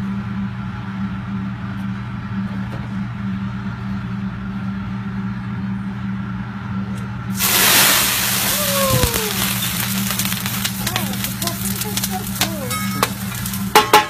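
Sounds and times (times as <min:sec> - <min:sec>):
steady low hum: 0:00.0 - 0:14.0
liquid sizzling on hot griddle: 0:07.3 - 0:14.0.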